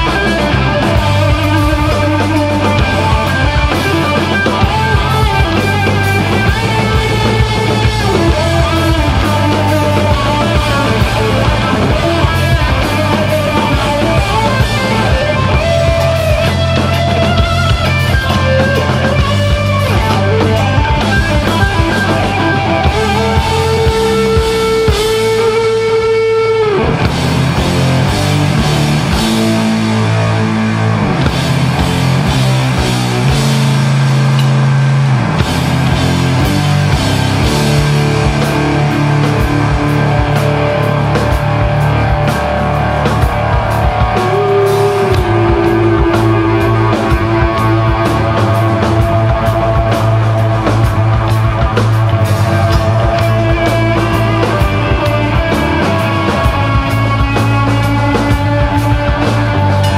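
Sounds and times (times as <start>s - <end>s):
distorted electric guitars: 0.0s - 59.9s
drum kit: 0.0s - 59.9s.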